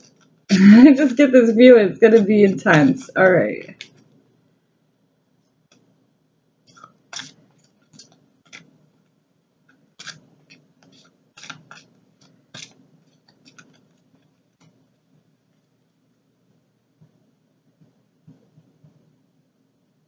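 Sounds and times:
cards being shuffled: 6.7s - 8.8s, 9.7s - 14.8s.

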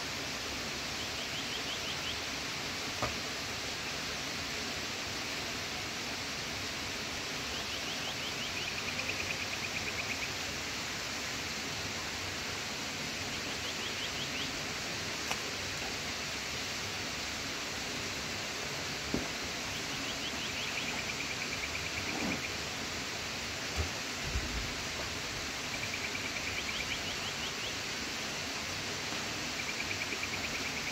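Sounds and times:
faint click: 15.2s - 15.4s.

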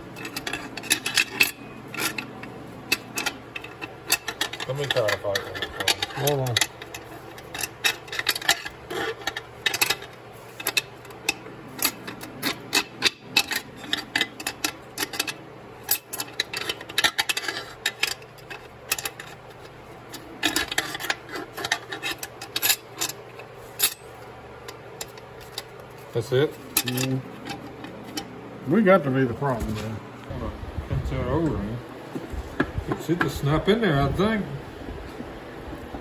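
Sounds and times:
light metallic clicks and scrapes: 0.1s - 28.4s.

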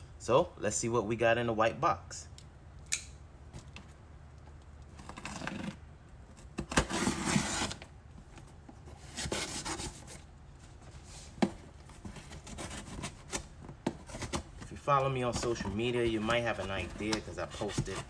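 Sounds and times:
sharp click: 2.8s - 3.2s.

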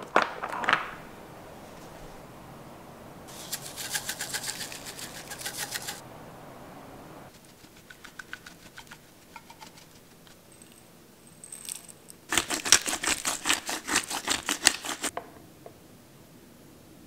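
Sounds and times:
spice tin taps: 7.8s - 10.8s
spice grinder clicking: 11.6s - 15.1s.

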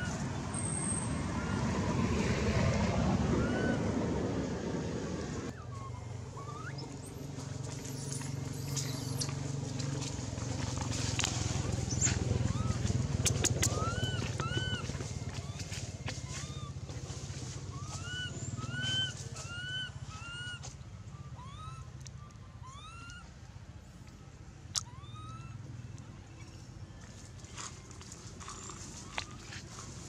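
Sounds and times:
infant monkey squeaky coo calls: 3.4s - 3.8s, 5.5s - 9.4s, 11.9s - 23.3s, 24.8s - 25.6s.

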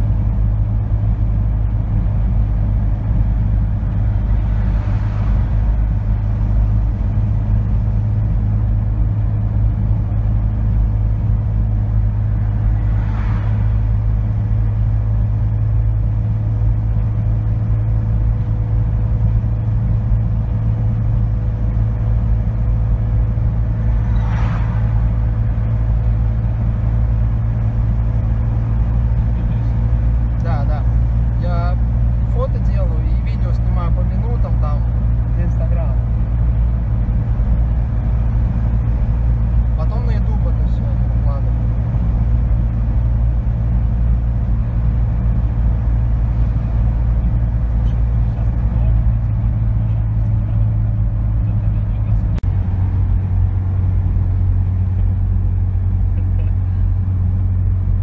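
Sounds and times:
car interior road noise: 0.0s - 58.0s.

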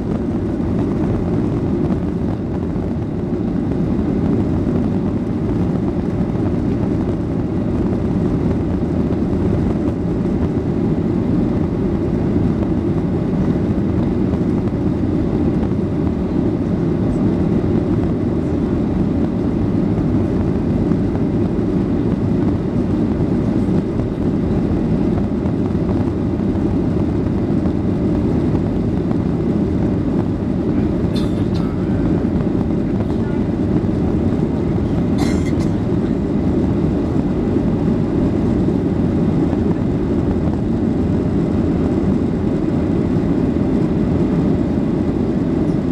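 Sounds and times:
airplane cabin jet engine rumble: 0.0s - 45.9s.

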